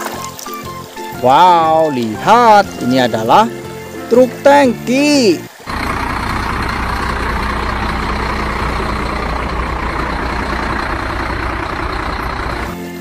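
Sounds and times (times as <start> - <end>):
truck engine drone: 0.6 - 13.0
tyre and road noise: 5.5 - 13.0.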